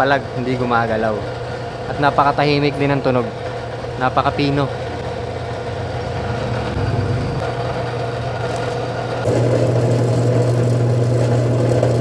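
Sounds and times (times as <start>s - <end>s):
drill press motor humming: 7.8s - 12.0s.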